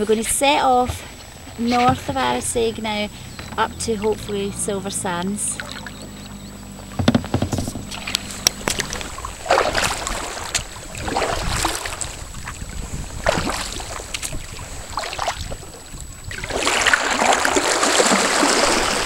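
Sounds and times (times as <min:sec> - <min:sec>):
paddle splashing and swishing: 0:00.0 - 0:19.0
water rushing: 0:00.0 - 0:19.0
light knocks: 0:06.9 - 0:08.8.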